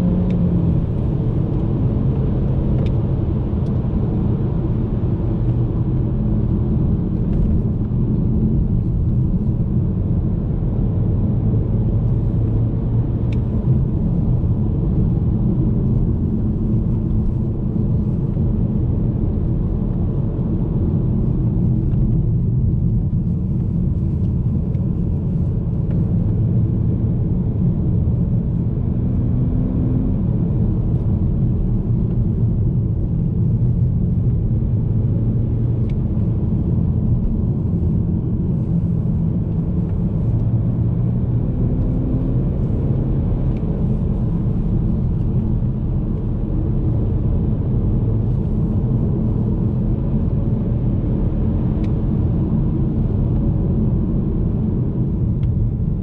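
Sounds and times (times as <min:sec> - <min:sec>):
car engine running: 0:00.0 - 0:56.0
road and tyre rumble: 0:00.0 - 0:56.0.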